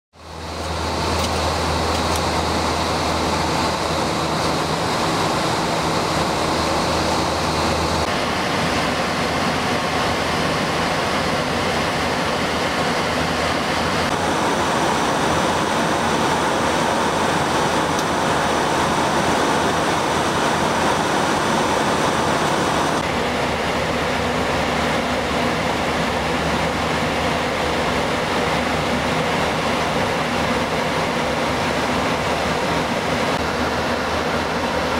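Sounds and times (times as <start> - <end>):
airflow and engine noise: 0.1 - 34.9.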